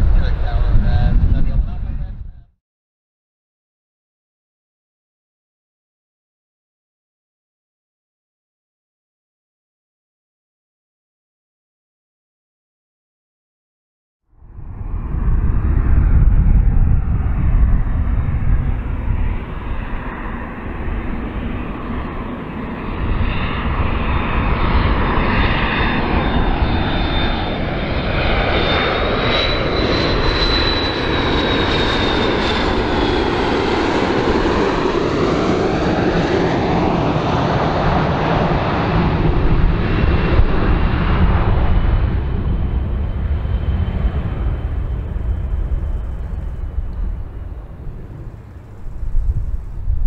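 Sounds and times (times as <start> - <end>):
jet engine roar with whine: 0.0 - 2.5, 14.4 - 50.0.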